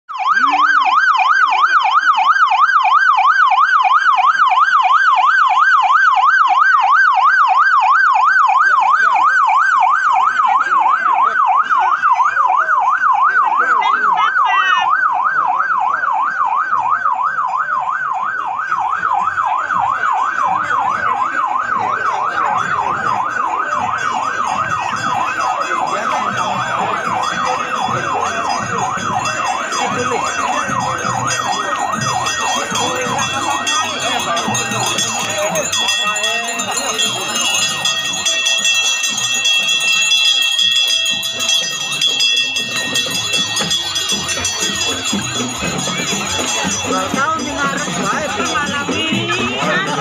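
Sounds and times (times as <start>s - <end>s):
crowd murmuring: 0.1s - 50.0s
siren yelping: 0.1s - 50.0s.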